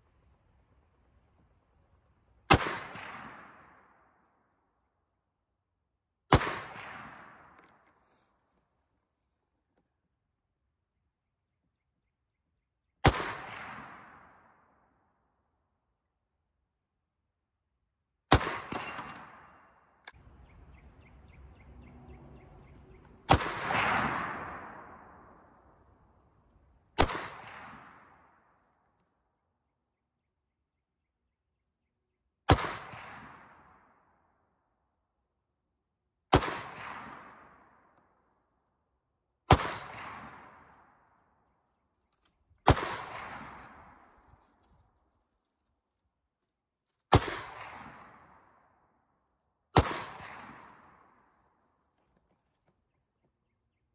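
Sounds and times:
rifle shots with echo: 2.5s - 4.4s, 6.3s - 7.8s, 13.0s - 14.9s, 18.3s - 20.7s, 23.1s - 26.2s, 26.8s - 28.6s, 32.5s - 34.0s, 36.3s - 37.9s, 39.5s - 41.2s, 42.6s - 44.4s, 47.1s - 48.8s, 49.7s - 51.6s.

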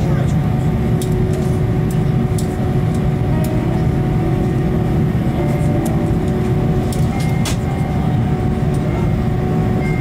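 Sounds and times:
low cabin rumble: 0.0s - 10.0s
steady hum: 0.0s - 10.0s.

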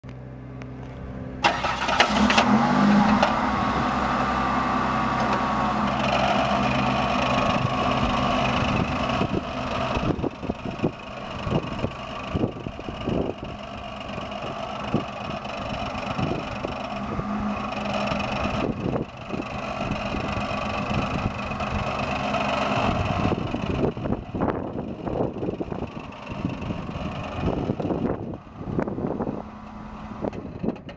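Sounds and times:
car engine starting and revving: 0.8s - 30.9s.

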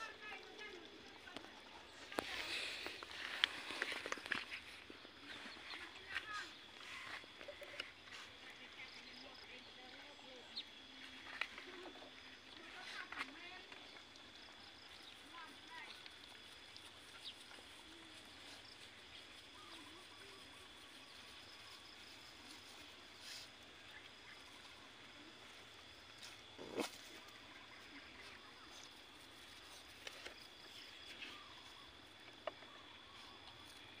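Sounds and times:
puppies eating from plastic bowl: 0.0s - 8.7s.

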